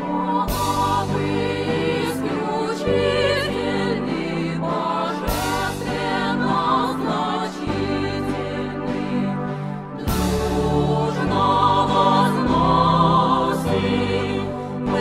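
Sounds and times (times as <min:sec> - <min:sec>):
background music: 0:00.0 - 0:15.0.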